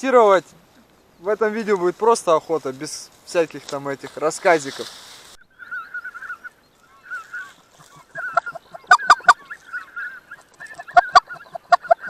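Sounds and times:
geese honking: 5.5 - 12.0.

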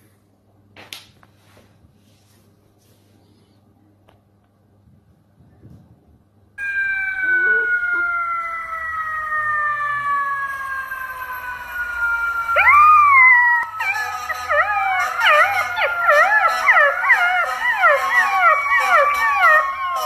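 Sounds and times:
puppy howling: 6.6 - 20.0
steady wail dropping in pitch: 6.6 - 20.0.

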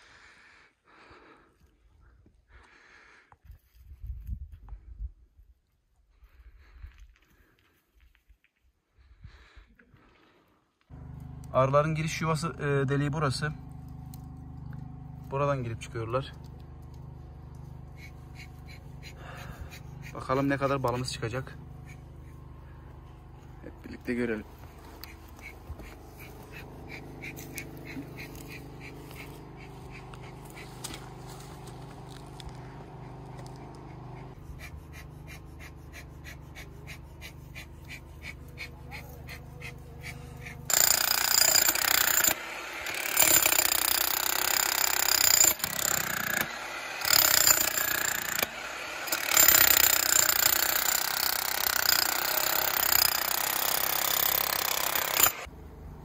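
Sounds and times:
low hum: 21.4 - 40.7
demolition hammer chiselling rock: 32.4 - 55.5.

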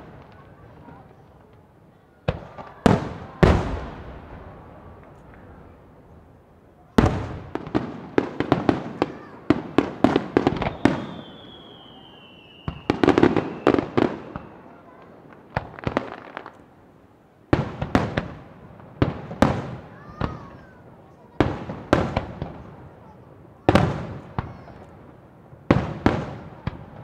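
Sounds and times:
long falling whistle: 10.7 - 13.7.

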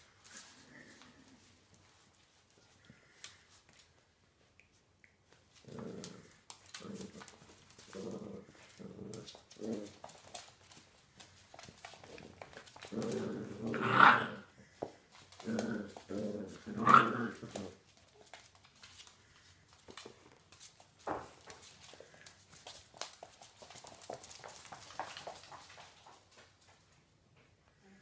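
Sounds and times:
dogs growling: 5.6 - 10.3, 12.0 - 14.7, 15.3 - 17.8.

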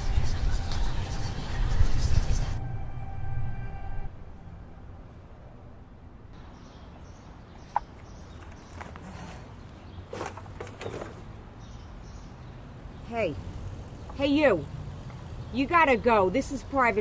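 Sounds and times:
bird chirp: 6.4 - 14.5
trash bag rustling: 8.3 - 11.4.

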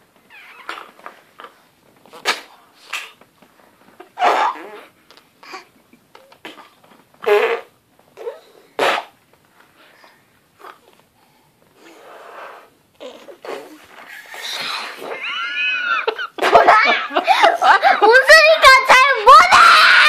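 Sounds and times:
child blowing up balloon: 4.2 - 5.7, 6.5 - 9.2, 11.8 - 15.2.

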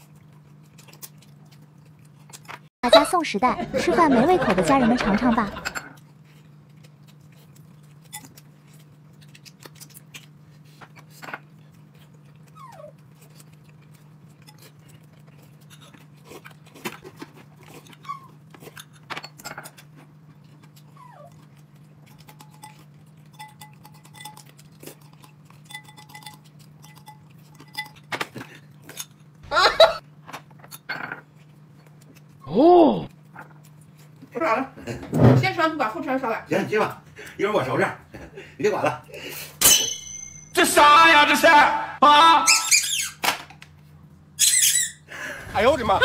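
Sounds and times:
tableware clinking: 4.5 - 5.9, 39.6 - 40.6.

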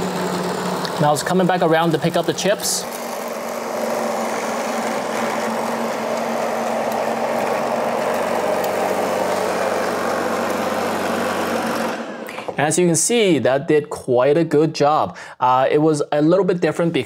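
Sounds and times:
robot vacuum whirring: 0.0 - 12.5.

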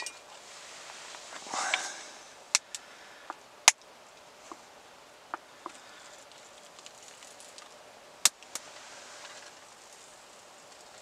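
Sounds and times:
faint steady hiss: 0.0 - 11.0
wood fire crackling and popping: 5.3 - 11.0.

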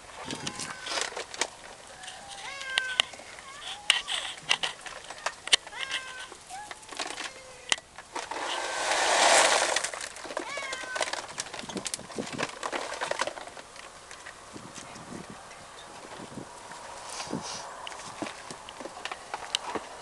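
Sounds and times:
cats meowing: 0.2 - 1.2, 1.9 - 6.4, 10.4 - 11.3
small clicks and scuffs: 0.2 - 8.6, 10.0 - 20.0
loud hiss-like noise: 8.1 - 10.0.

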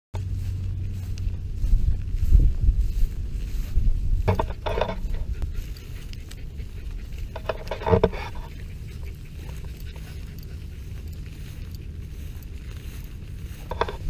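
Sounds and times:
wind and movement rumble: 0.2 - 14.0.

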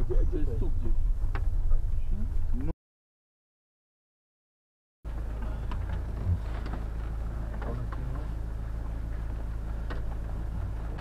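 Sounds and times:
diesel engine rumbling: 0.0 - 2.7, 5.1 - 11.0.

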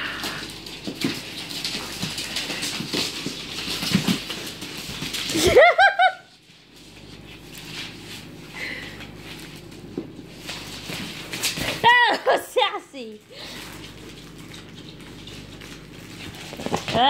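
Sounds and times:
scratchy scuffling with clicks: 0.2 - 5.8, 13.5 - 17.0
person laughing high-pitched: 5.3 - 6.3, 11.8 - 12.9.

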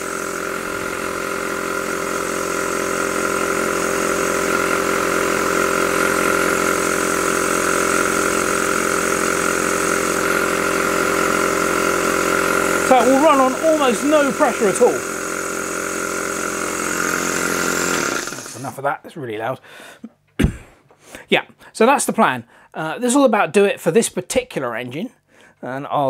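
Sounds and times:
air compressor humming: 0.0 - 18.8.

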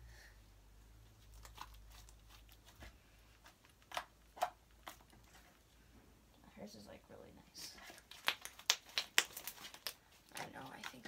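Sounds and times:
slime crackling and clicking: 8.1 - 10.0
slime snapping: 8.1 - 10.0.

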